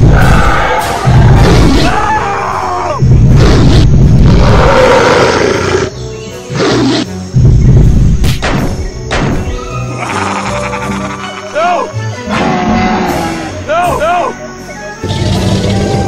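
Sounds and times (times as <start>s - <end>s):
background music: 0.0s - 16.0s
dinosaur roars: 3.3s - 5.9s.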